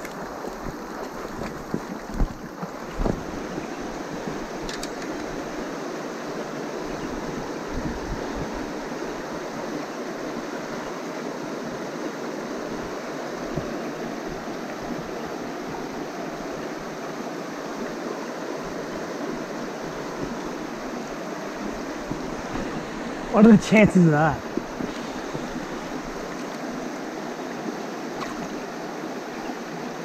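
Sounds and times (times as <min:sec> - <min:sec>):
creek water running over rocks: 0:00.0 - 0:30.0.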